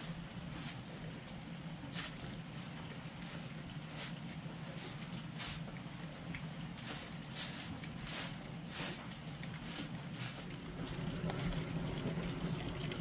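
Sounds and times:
hand broom sweeping a rug: 0.0s - 0.8s, 1.9s - 5.7s, 6.8s - 10.5s.

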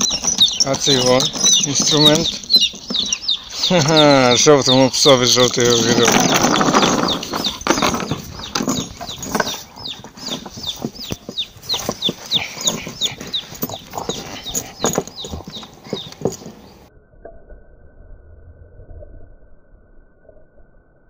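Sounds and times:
small bird chirping: 0.0s - 16.9s
dog gnawing on wooden boards: 5.5s - 16.7s.

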